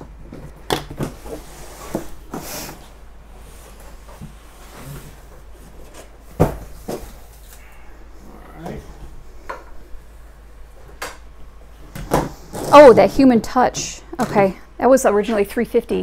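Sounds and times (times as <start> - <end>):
boxes knocking and rubbing: 12.0 - 13.3.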